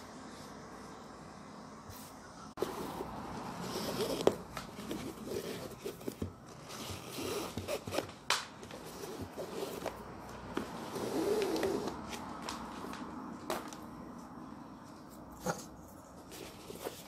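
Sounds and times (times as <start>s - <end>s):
rustling: 1.9s - 13.8s, 14.9s - 17.0s
thread zipping through sneaker: 7.0s - 8.0s, 10.9s - 12.0s.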